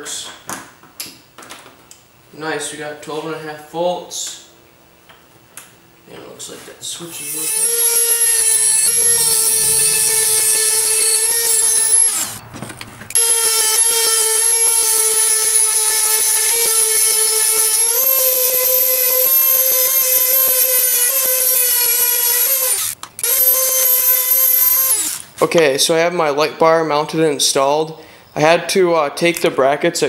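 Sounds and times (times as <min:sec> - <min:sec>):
rotary tool grinding metal: 0:07.0 - 0:12.4, 0:13.1 - 0:25.3.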